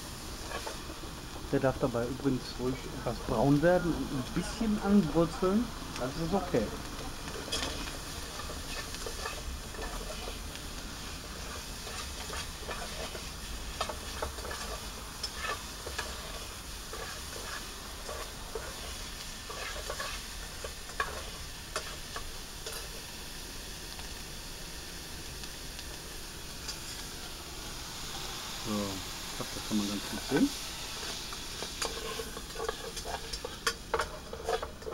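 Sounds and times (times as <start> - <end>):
bacon sizzling in a pot: 0.0 - 34.9
metal spoon scraping a pot: 7.3 - 10.4, 11.4 - 22.9, 31.0 - 34.9.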